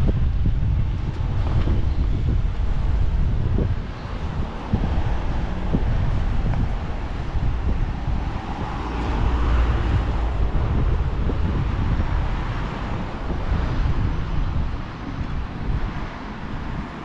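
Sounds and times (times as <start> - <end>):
wind buffeting microphone: 0.0 - 17.0
passing vehicle hiss: 3.8 - 17.0.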